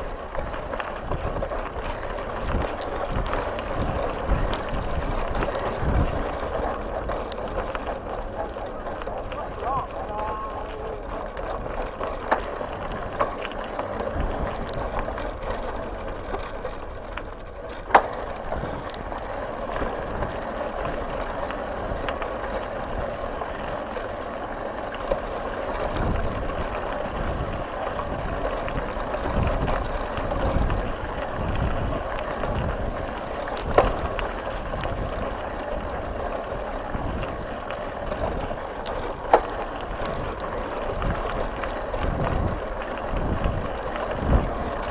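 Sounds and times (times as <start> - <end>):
bicycle tyres crunching gravel: 0.0 - 44.9.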